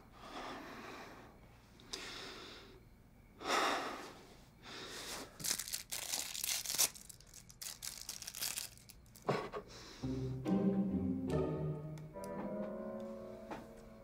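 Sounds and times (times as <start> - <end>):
packaging crinkling and tearing: 5.4 - 9.3.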